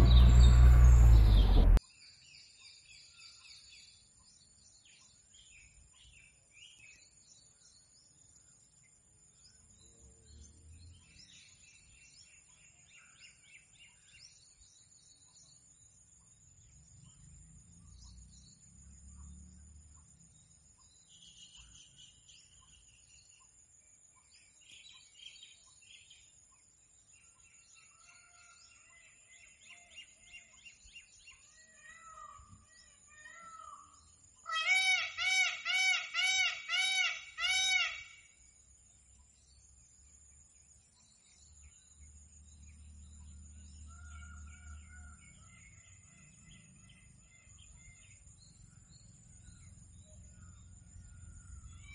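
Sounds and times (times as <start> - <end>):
low rumble: 0.0 - 1.8
birds chirping in trills: 0.0 - 51.9.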